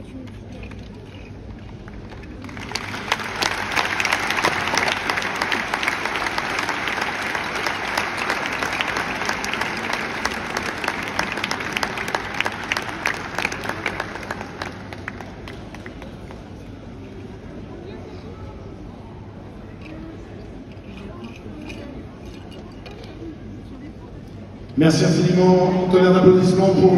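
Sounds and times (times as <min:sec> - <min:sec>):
audience clapping: 0:01.9 - 0:16.7.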